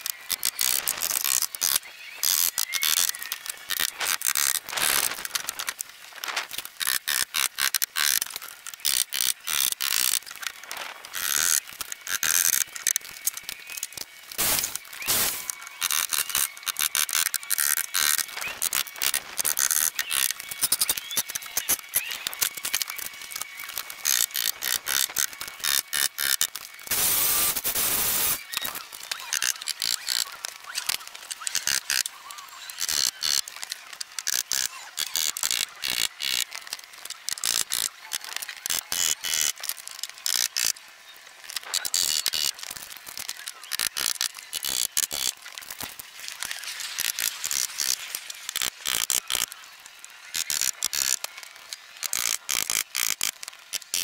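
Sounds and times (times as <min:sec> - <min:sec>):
power tool buzzing: 0:11.0 - 0:30.8.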